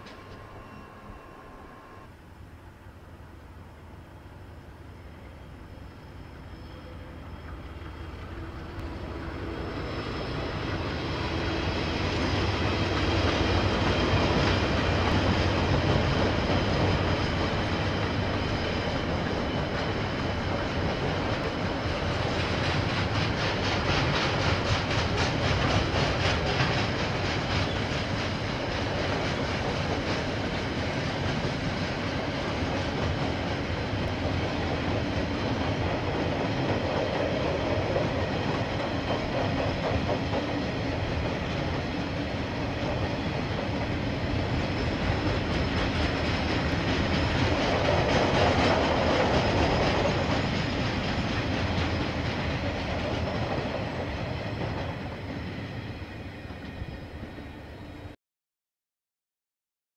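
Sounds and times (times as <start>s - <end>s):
locomotive engines droning: 0.0s - 23.2s
wheels clacking on rails: 6.7s - 57.0s.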